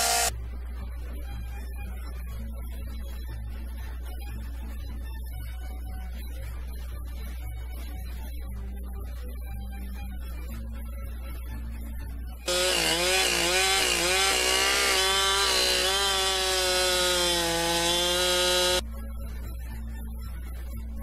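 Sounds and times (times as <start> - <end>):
chainsaw cutting wood: 0.0 - 0.3, 12.5 - 18.8.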